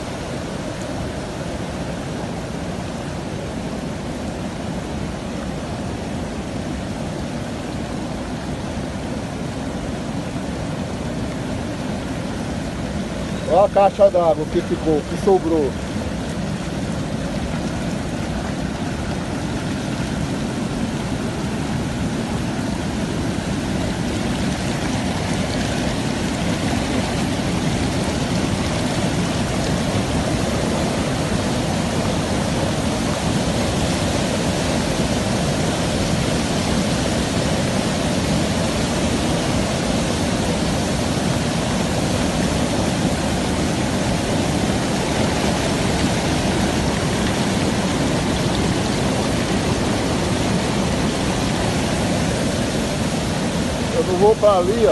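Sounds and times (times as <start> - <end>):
floodwater rushing: 0.0 - 54.9.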